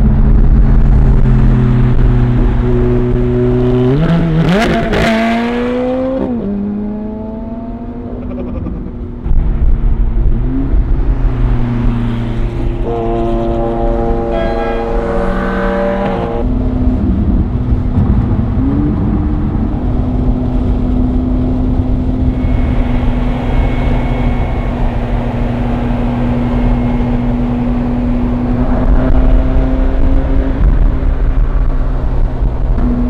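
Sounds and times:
car engine drone: 0:00.0 - 0:33.0.

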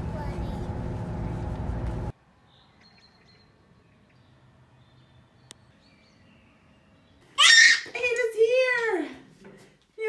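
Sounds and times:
faint birds chirping: 0:02.3 - 0:07.6.

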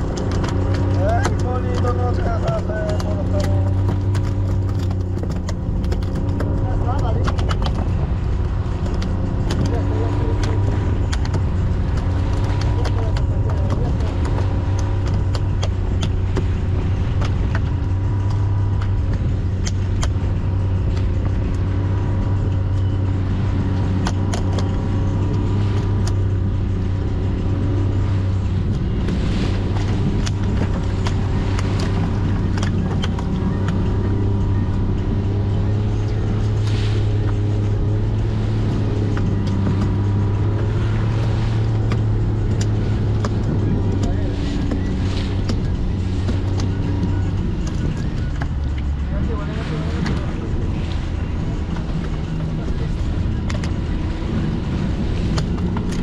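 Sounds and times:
boat motor droning: 0:00.0 - 0:56.0.

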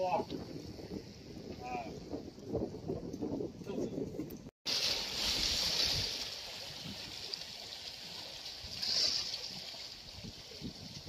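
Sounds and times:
seawater splashing on concrete: 0:04.6 - 0:10.4.

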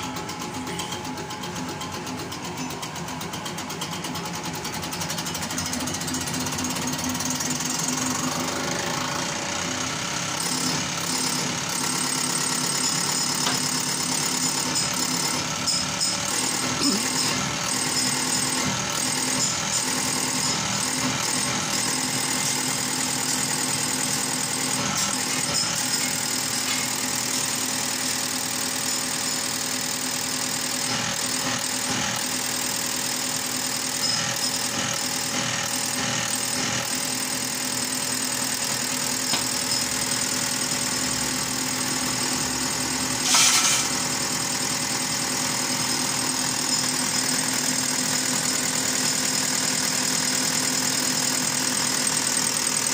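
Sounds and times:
injection pump running hum: 0:00.0 - 0:52.9.

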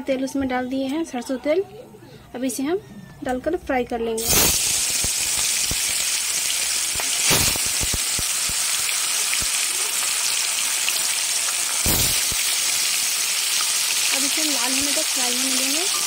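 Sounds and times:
fish sizzling in hot oil: 0:04.2 - 0:16.0.

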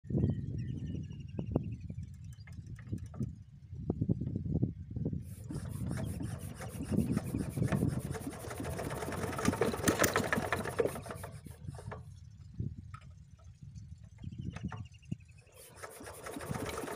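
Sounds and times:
diesel engine being hand-cranked: 0:05.3 - 0:14.9, 0:15.5 - 0:16.9.

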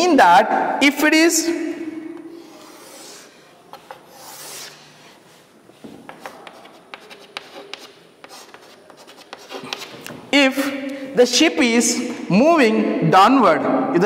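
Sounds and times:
chalk scraping on blackboard: 0:02.3 - 0:10.7
chalk tapping and scratching: 0:02.4 - 0:10.7.

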